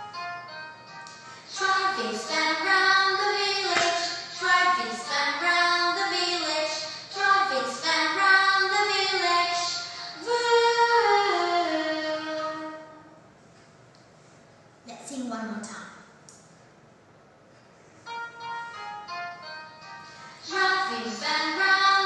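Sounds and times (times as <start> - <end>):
woman singing: 1.5 - 12.9, 20.4 - 22.0.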